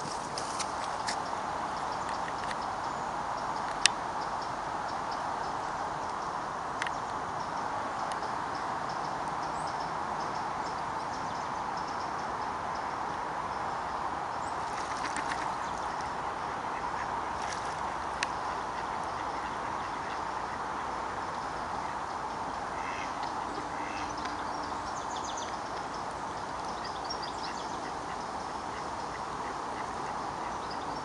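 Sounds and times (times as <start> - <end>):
steady background hiss: 0.0 - 31.0
ducks quacking: 16.7 - 20.9, 22.7 - 24.2.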